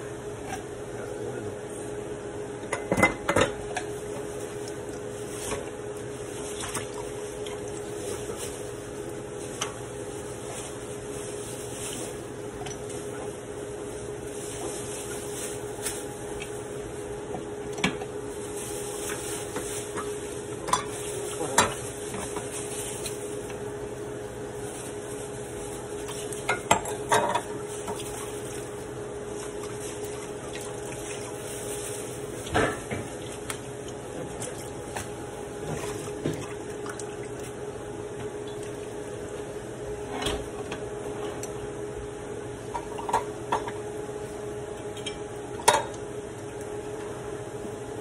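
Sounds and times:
dishes and pots clinking: 0:19.6 - 0:22.4, 0:26.5 - 0:28.0.

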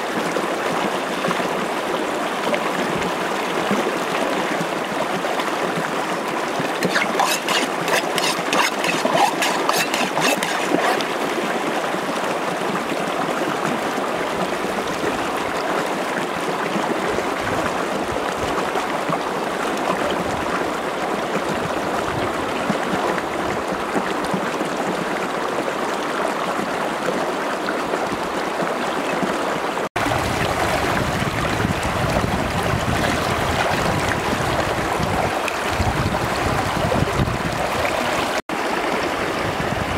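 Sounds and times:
stream running over rocks: 0:00.0 - 0:39.9
water splashing: 0:06.5 - 0:12.2, 0:29.9 - 0:39.0.

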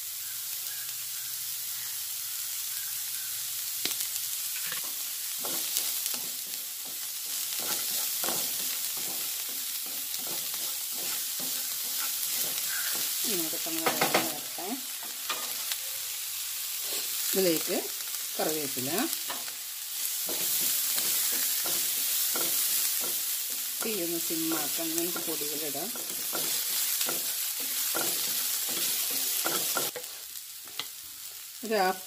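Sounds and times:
onions sizzling in frying pan: 0:00.0 - 0:32.0
wooden spatula scraping pan: 0:10.2 - 0:13.2.

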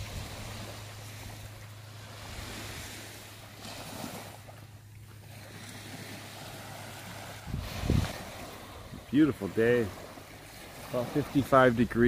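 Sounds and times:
wind on microphone hum: 0:00.0 - 0:04.4, 0:05.3 - 0:09.2
surf washing onto beach: 0:00.0 - 0:12.0.

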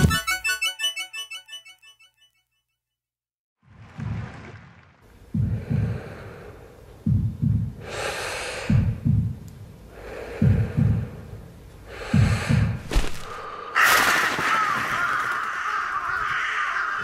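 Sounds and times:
heartbeat-like double thumps: 0:05.3 - 0:06.4, 0:07.0 - 0:07.9, 0:08.6 - 0:09.5, 0:10.3 - 0:11.4, 0:12.0 - 0:12.9
breathy inhales and exhales: 0:09.9 - 0:13.8.

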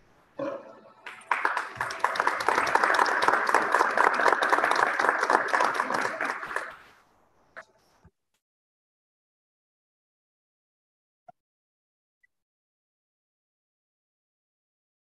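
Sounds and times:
crowd applauding: 0:00.9 - 0:06.9.

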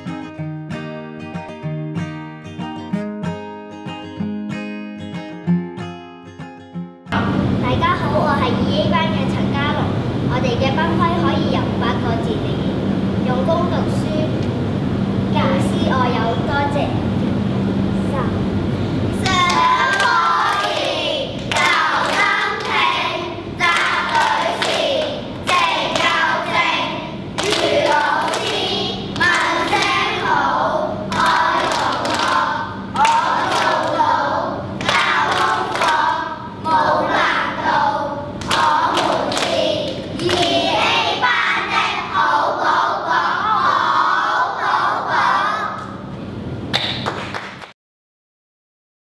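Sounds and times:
hand claps: 0:19.2 - 0:22.8, 0:23.6 - 0:26.2, 0:27.4 - 0:30.0, 0:31.1 - 0:34.0, 0:34.8 - 0:36.0, 0:38.4 - 0:40.7, 0:46.7 - 0:47.7
children chanting in unison: 0:19.2 - 0:46.0.

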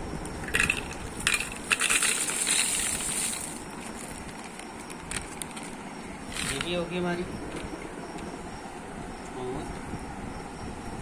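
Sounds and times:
dried chillies rattling into jar: 0:00.5 - 0:05.7
plastic packet crinkling: 0:00.6 - 0:06.7.

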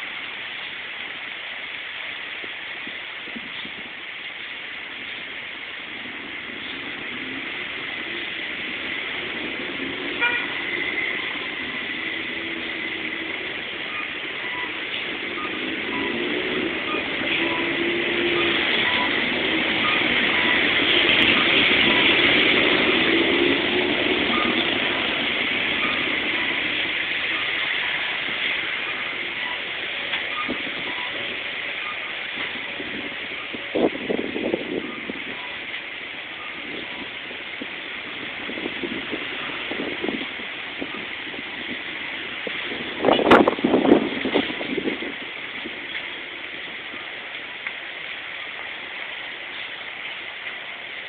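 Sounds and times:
passing cars: 0:04.8 - 0:51.0
car horn toot: 0:10.2 - 0:10.6.

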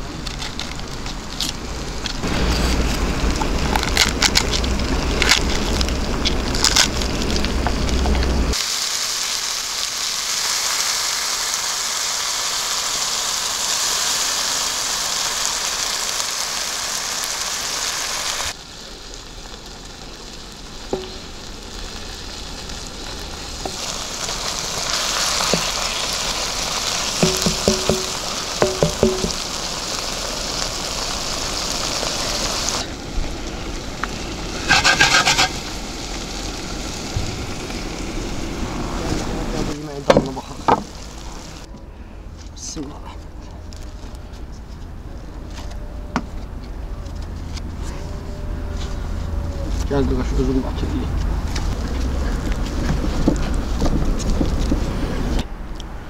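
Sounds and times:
chicken frying hiss: 0:00.0 - 0:41.7, 0:47.5 - 0:55.5
low rumble: 0:01.6 - 0:08.6.

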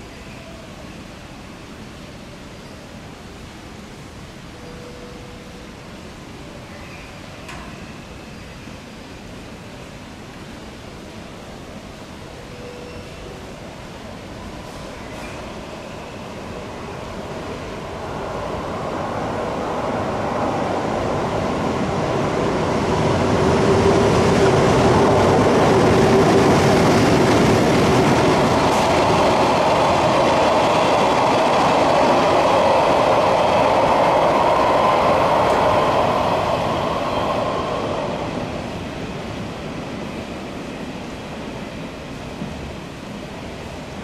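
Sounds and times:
train wheels rumbling on rails: 0:11.2 - 0:44.0
electric locomotive motors humming: 0:12.2 - 0:44.0.

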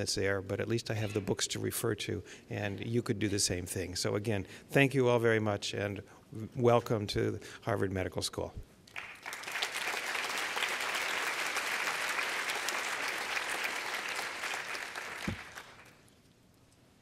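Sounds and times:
audience applauding: 0:08.9 - 0:16.0.

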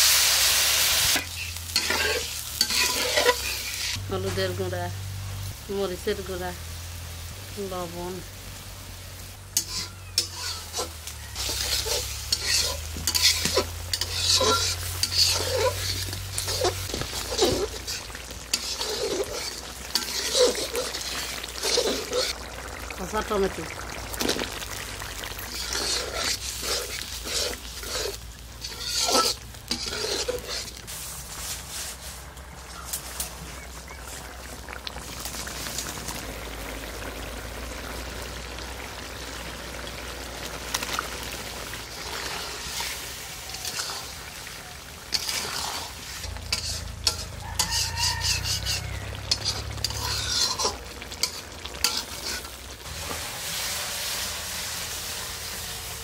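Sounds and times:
paste and tomato sizzling: 0:00.0 - 0:56.0
spatula scraping a pan: 0:01.1 - 0:04.0, 0:09.5 - 0:22.8, 0:25.2 - 0:32.4, 0:41.8 - 0:54.3.

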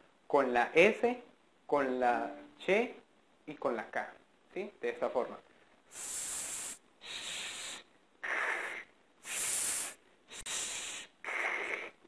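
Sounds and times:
man exhaling hissed consonants: 0:05.9 - 0:12.0.

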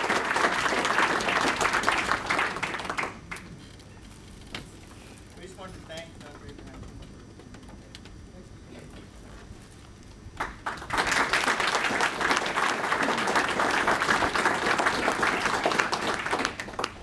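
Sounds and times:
audience applauding: 0:00.0 - 0:03.6, 0:10.4 - 0:17.0.

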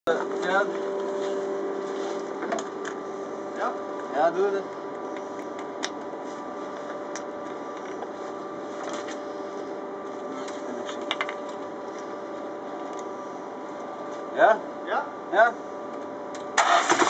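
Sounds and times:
steady low hum: 0:00.1 - 0:17.0.

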